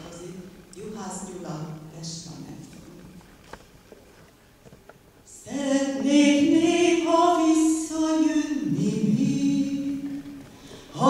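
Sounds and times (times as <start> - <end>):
woman singing: 5.3 - 10.2.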